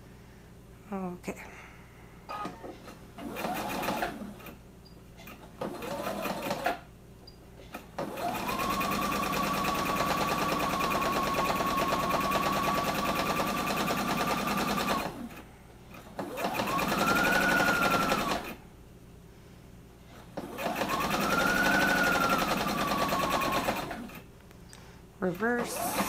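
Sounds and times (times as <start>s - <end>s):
sewing machine stitching: 2.3s - 4.6s, 5.2s - 6.8s, 7.7s - 18.6s, 20.3s - 24.2s, 25.4s - 26.0s.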